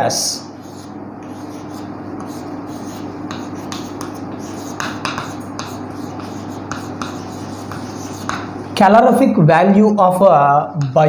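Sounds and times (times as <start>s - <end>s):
steady low hum: 0.0s - 11.0s
chalk scratching on blackboard: 0.6s - 8.7s.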